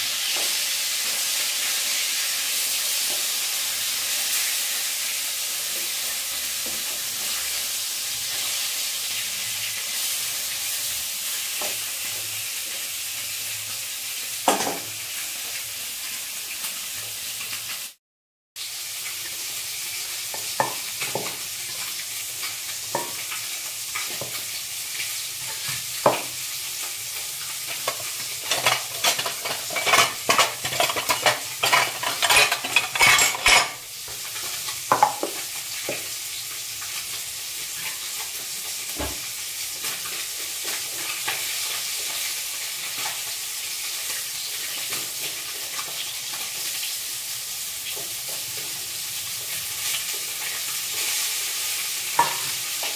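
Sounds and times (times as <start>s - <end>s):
hot oil sizzling: 0.0s - 18.0s, 18.6s - 52.9s
wooden spatula stirring: 27.8s - 33.0s
utensil clinking on steel jar: 27.9s - 33.8s.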